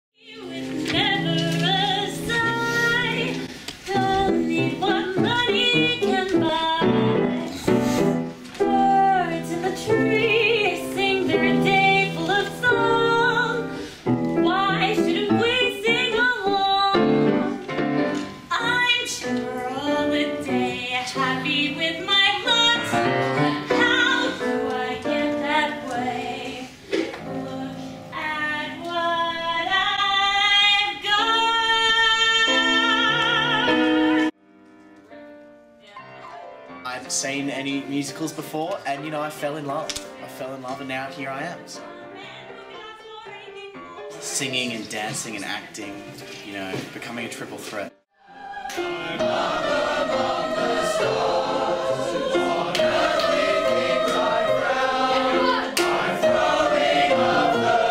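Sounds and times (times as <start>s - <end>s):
woman singing: 0.2s - 7.4s, 8.6s - 13.7s, 14.4s - 17.4s, 18.5s - 34.3s, 41.8s - 44.2s
piano accompaniment: 0.2s - 57.9s.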